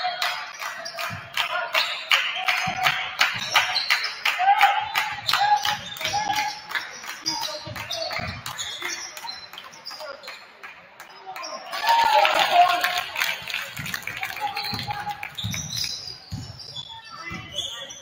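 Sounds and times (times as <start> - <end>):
voices in gym: 0.0 - 18.0
sneakers squeaking: 0.7 - 4.2, 4.8 - 10.5, 13.6 - 18.0
basketball bouncing on wooden floor: 14.7 - 16.7.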